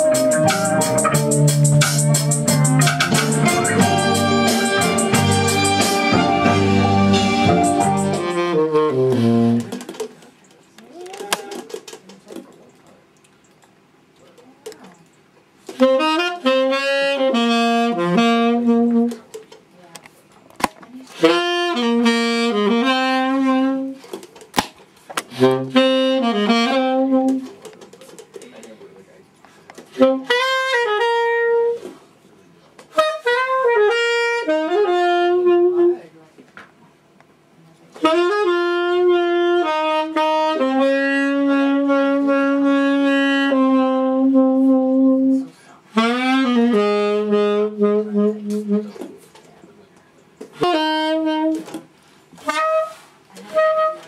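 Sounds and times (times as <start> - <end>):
music with deep bass and keyboard: 0.0 - 9.7
saxophone long held notes: 0.0 - 9.7, 15.7 - 19.2, 21.2 - 24.0, 25.3 - 27.6, 30.0 - 32.0, 32.9 - 36.1, 38.0 - 49.1, 50.6 - 51.8, 52.4 - 54.0.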